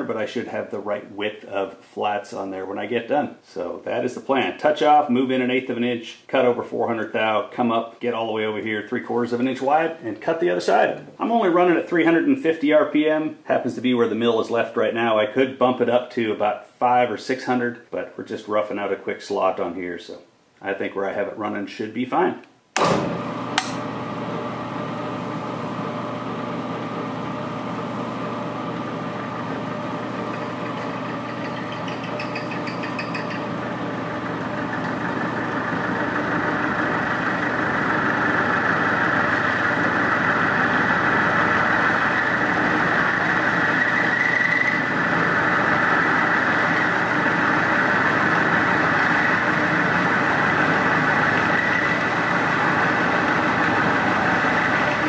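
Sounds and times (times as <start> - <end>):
milling machine cutting metal: 22.8 - 55.0.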